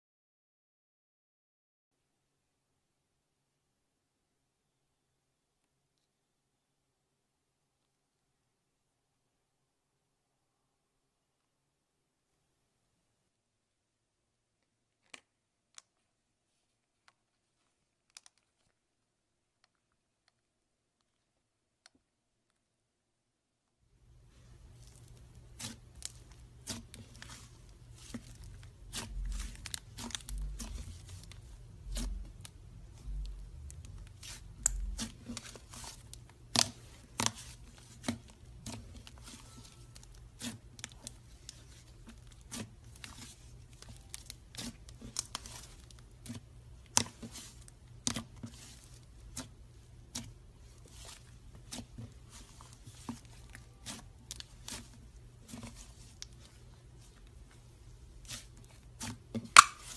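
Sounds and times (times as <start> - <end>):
slime clicking and crackling: 24.7 - 57.4, 58.1 - 59.9.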